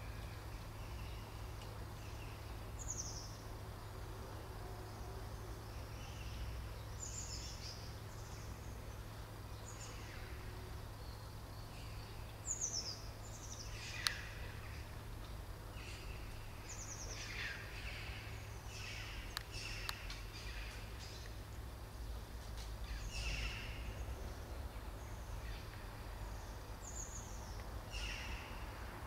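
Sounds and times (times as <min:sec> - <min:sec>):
small birds chirping: 0:00.0 - 0:04.2, 0:04.8 - 0:29.0
low outdoor rumble: 0:00.0 - 0:29.0
faint clicks: 0:01.6 - 0:01.8, 0:19.3 - 0:21.6.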